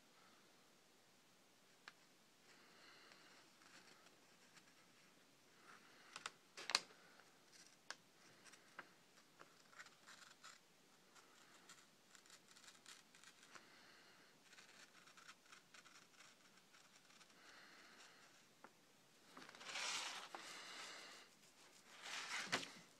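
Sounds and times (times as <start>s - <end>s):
knife shaving paper: 7.4s - 13.8s, 14.4s - 18.5s, 19.5s - 22.9s
paper rustling: 19.3s - 22.9s.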